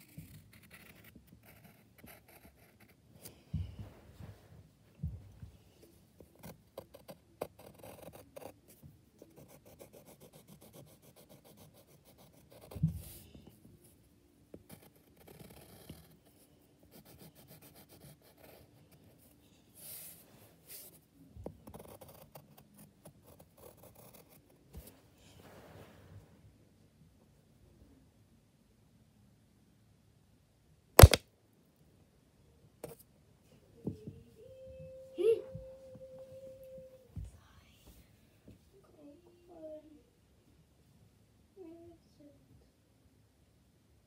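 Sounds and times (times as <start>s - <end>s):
pencil scratching on paper: 0.0s - 3.0s, 6.3s - 8.6s, 9.3s - 13.3s, 14.6s - 21.0s, 21.6s - 24.9s.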